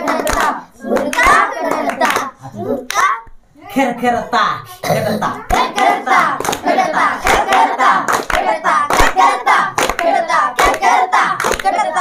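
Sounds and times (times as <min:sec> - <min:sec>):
hand claps: 0:00.0 - 0:02.3, 0:05.5 - 0:12.0
boys chanting in unison: 0:00.0 - 0:02.6, 0:04.9 - 0:12.0.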